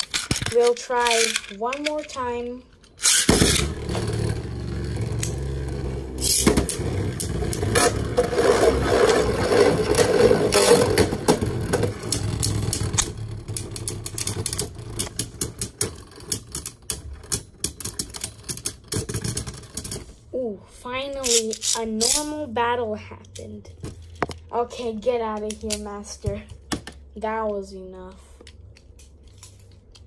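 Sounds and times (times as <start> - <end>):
spinning tops clacking together: 0.0 - 2.2, 6.2 - 7.7
spinning tops launching: 3.0 - 4.4, 6.1 - 9.4
spinning tops whirring on plastic: 3.0 - 20.0.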